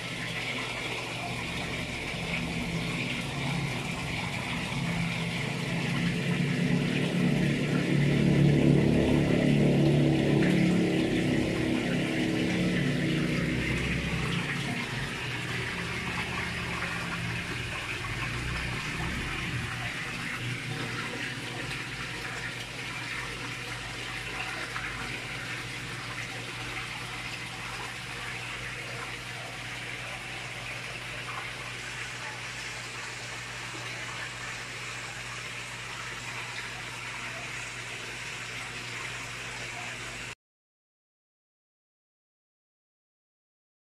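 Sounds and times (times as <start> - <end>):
low steady hum: 0.0 - 40.3
water splashing into pond: 0.0 - 40.3
loud low rumble: 1.7 - 21.7.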